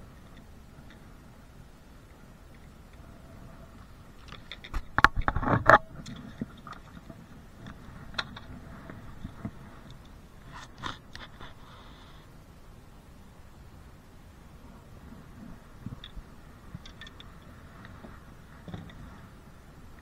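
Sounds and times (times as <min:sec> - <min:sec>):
microphone handling noise: 0:04.4 - 0:11.8.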